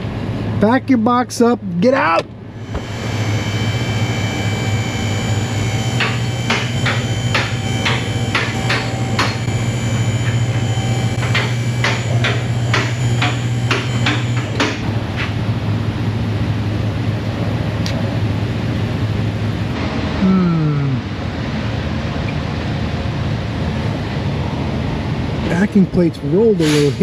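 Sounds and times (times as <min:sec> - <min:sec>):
steady motor hum: 0:00.0 - 0:25.6
sharp metallic clicks: 0:05.0 - 0:15.3.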